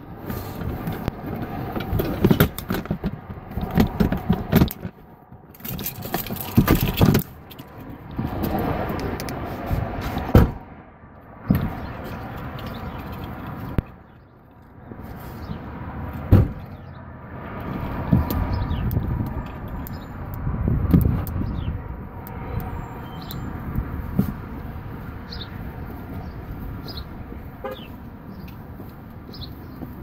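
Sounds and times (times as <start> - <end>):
clicks knocks and thumps: 0.6 - 7.7, 18.0 - 21.4.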